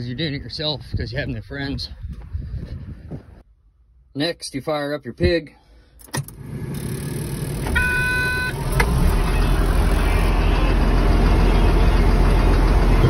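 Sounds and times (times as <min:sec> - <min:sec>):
diesel engine starting and running: 0:05.7 - 0:13.0
warning tone: 0:07.7 - 0:13.0.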